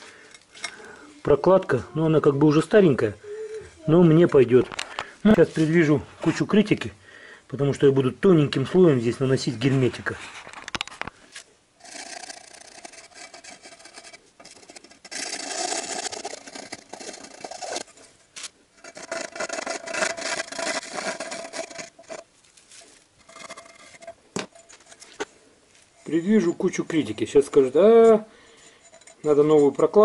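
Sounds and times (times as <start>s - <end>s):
rubbing and scraping: 9.2s - 30.0s.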